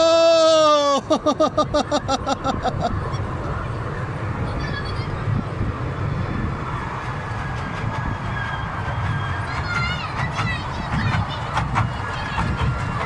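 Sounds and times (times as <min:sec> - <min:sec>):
ride train rumbling: 0:00.0 - 0:13.0
young child's voice: 0:04.4 - 0:05.4, 0:09.5 - 0:12.8.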